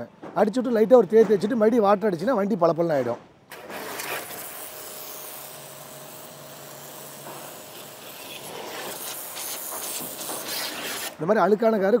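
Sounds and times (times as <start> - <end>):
pressure washer spray hissing: 3.6 - 11.2.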